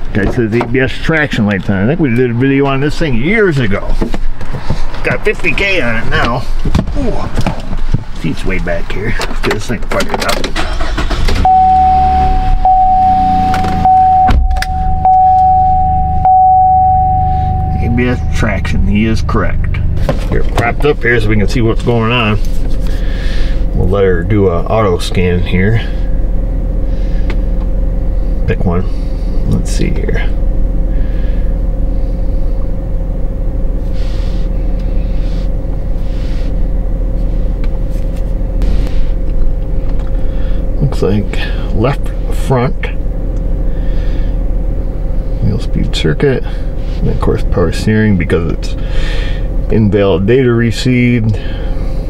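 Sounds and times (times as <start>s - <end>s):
pickup engine running: 0.0s - 52.0s
steady high tone: 11.4s - 20.0s.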